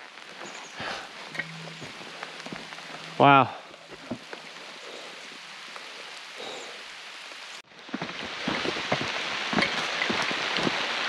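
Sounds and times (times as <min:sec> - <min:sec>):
rain hissing: 0:00.0 - 0:11.0
raindrops striking close by: 0:00.0 - 0:11.0.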